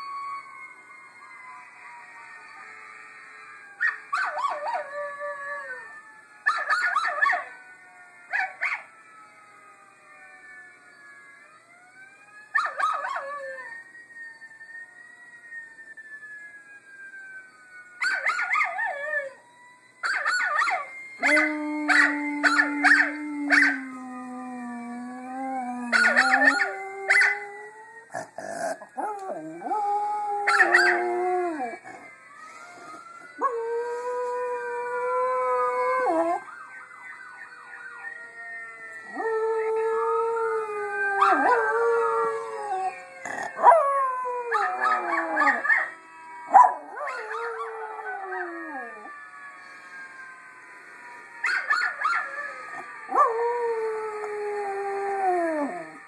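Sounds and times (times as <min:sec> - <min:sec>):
dog howling through laptop speaker: 0:03.8 - 0:05.9, 0:20.0 - 0:36.5, 0:39.0 - 0:49.2, 0:51.4 - 0:56.0
dog howling and yipping: 0:20.1 - 0:32.0, 0:40.9 - 0:49.1, 0:51.4 - 0:53.7.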